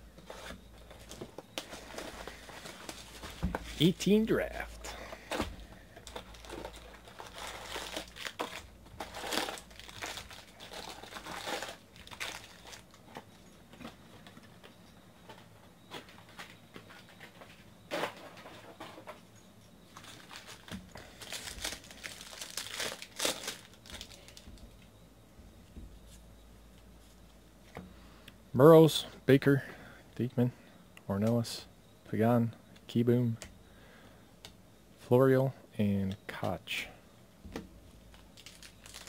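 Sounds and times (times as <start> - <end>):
foil wrappers crinkling: 0.3 - 14.3, 19.9 - 24.7, 38.0 - 39.0
foil packs tearing open: 5.3 - 13.0, 20.0 - 24.5, 38.2 - 39.0.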